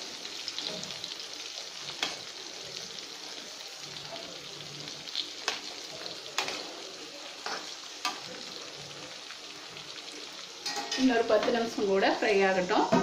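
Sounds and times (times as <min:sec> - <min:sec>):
eggplant sizzling in oil: 0:00.0 - 0:13.0
metal spatula scraping pan: 0:10.6 - 0:11.6.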